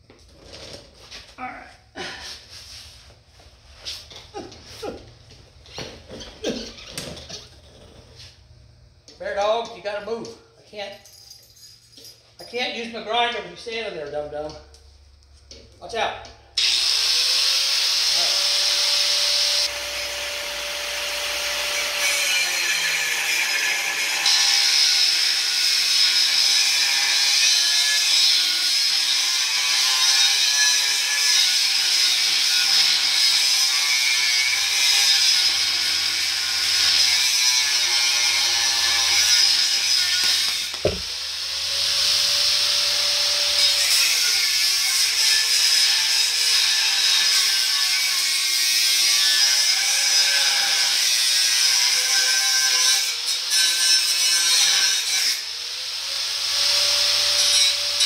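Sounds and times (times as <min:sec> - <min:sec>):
angle grinder cutting steel: 0:16.6 - 0:58.0
knock: 0:40.8 - 0:41.1.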